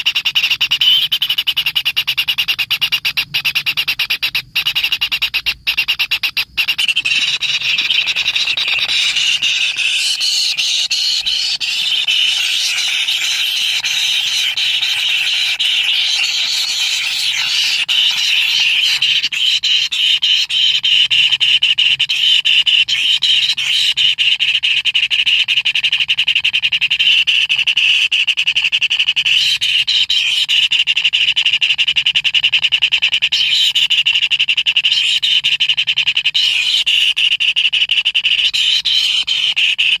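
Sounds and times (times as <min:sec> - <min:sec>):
nestlings begging buzz: 0:06.2 - 0:20.6.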